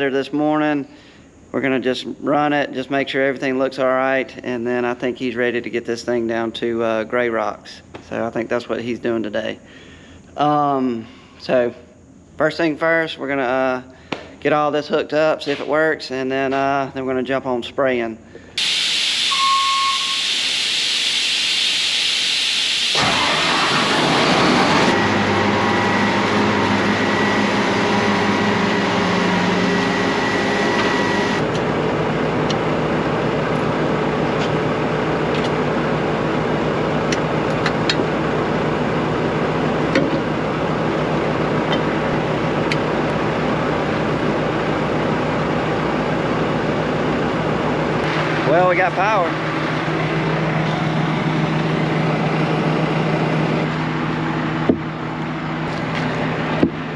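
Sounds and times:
hiss: 18.6s - 24.2s
diesel engine running: 22.3s - 56.9s.

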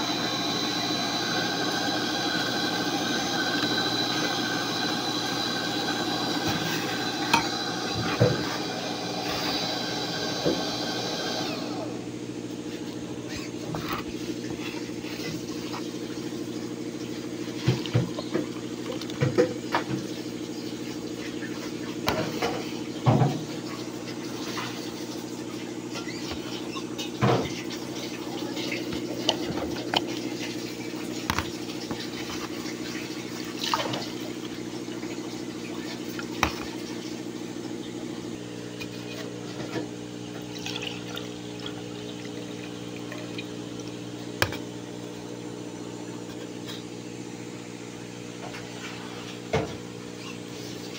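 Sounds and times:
juicer motor humming: 0.0s - 50.9s
juice pouring into glasses: 40.3s - 44.4s.

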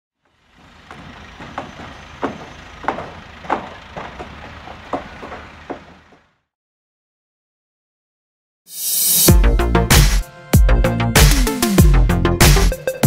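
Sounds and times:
heavy equipment rumbling: 0.2s - 6.4s
sharp clanks and bangs: 0.8s - 6.2s.

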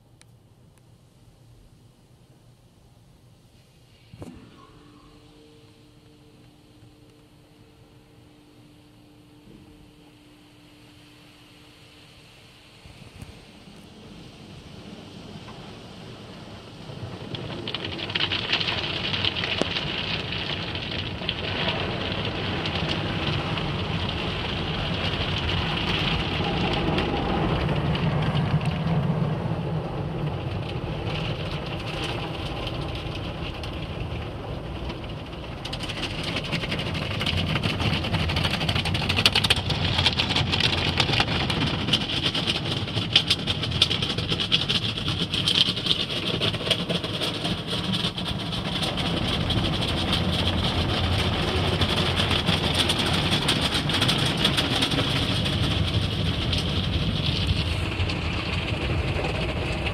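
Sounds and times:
water and foam spraying on car: 12.5s - 59.9s.

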